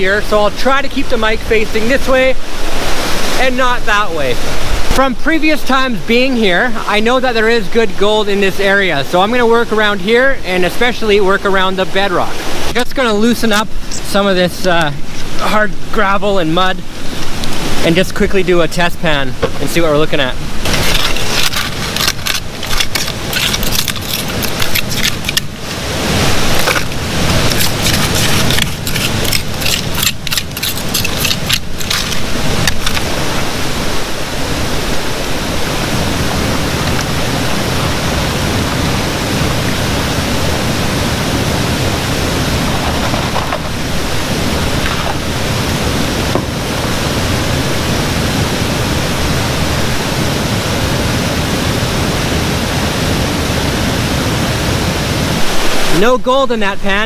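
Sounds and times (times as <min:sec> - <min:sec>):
waterfall rushing: 0:00.0 - 0:57.0
trowel scraping in gravel: 0:20.7 - 0:25.5, 0:26.4 - 0:33.0
stones rattling: 0:20.7 - 0:25.6, 0:26.5 - 0:33.1, 0:42.7 - 0:43.8.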